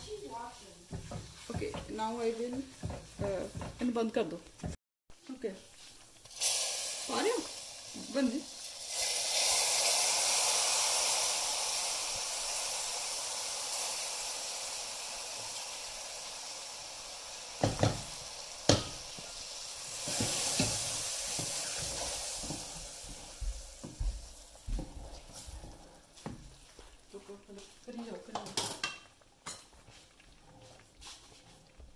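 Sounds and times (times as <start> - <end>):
stirring knocks: 0.0 - 4.8, 17.6 - 19.2, 20.1 - 31.9
hot oil sizzling: 0.0 - 31.9.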